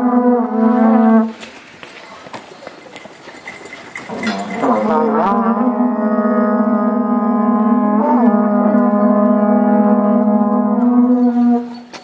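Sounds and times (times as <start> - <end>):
conch shell trumpet low note: 4.8 - 11.7.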